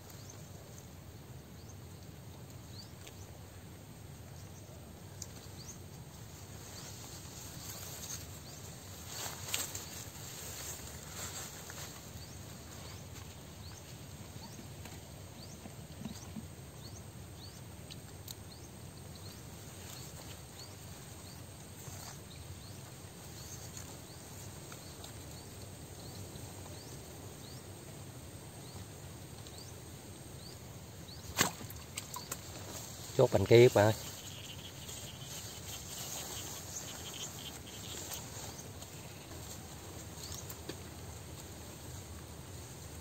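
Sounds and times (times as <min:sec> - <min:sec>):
faint high chirps: 0:32.0 - 0:39.3.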